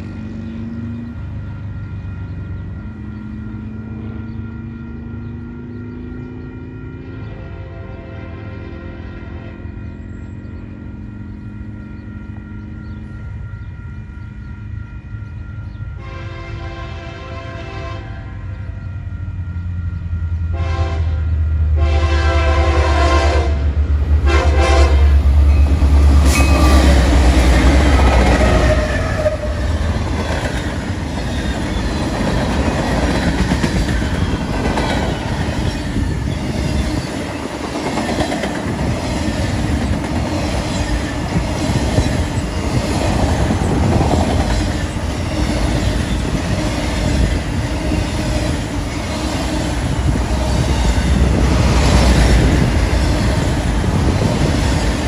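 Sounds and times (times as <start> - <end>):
diesel locomotive engine rumble: 0.0 - 55.0
locomotive horn blasts: 7.0 - 10.0, 16.0 - 18.8, 20.5 - 29.9
train wheels clickety-clack: 25.4 - 55.0.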